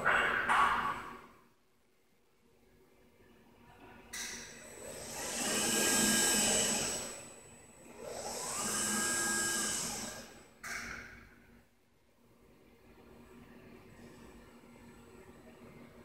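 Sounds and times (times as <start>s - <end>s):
robot arm servo whine: 4.6s - 10.4s.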